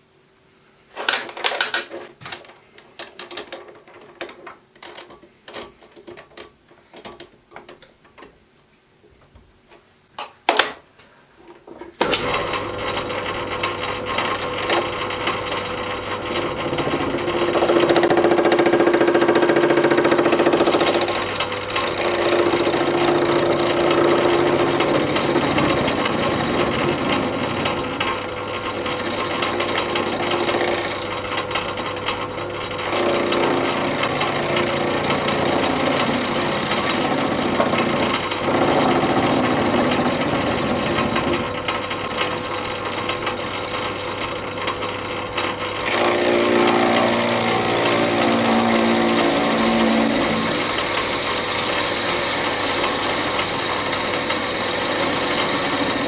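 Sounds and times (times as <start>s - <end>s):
clicks and knocks in lathe chuck: 1.1s - 8.4s
lathe running: 12.1s - 56.0s.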